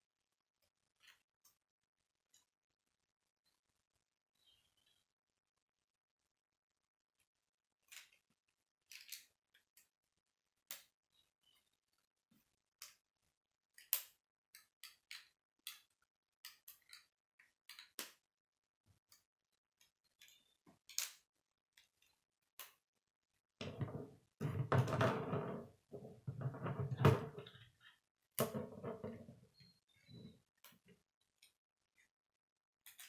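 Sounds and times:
plastic pieces clicking together: 0:08.8 - 0:09.9, 0:13.8 - 0:18.2, 0:19.8 - 0:22.8.

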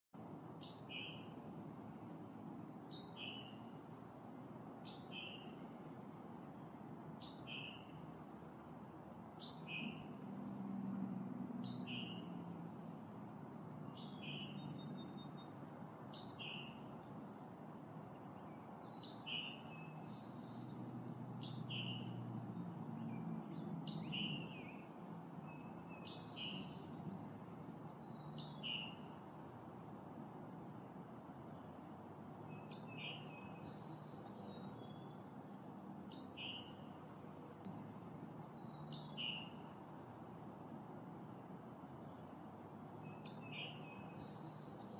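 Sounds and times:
small bird chirping: 0:23.1 - 0:29.2, 0:32.4 - 0:35.2, 0:37.6 - 0:39.8, 0:42.9 - 0:44.9.

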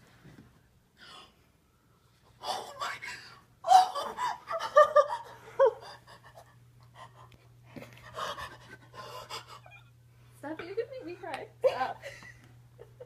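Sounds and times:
woman whimpering: 0:02.4 - 0:06.5, 0:08.2 - 0:09.9
woman laugh-sobbing: 0:03.6 - 0:07.3, 0:11.6 - 0:13.0.

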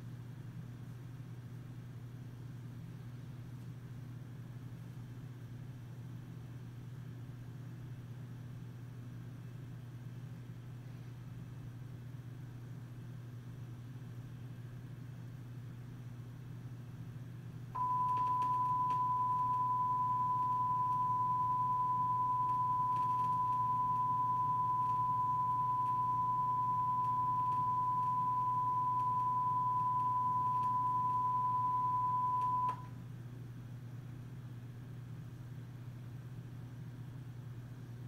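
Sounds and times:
low steady hum: 0:00.0 - 0:38.0
steady pure test tone: 0:17.8 - 0:32.8.

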